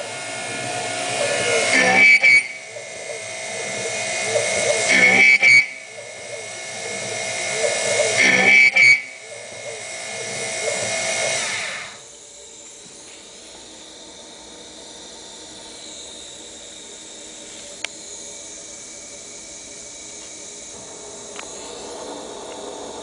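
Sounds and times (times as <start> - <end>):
end mill cutting steel: 0.0 - 18.4
steady hiss: 0.0 - 23.0.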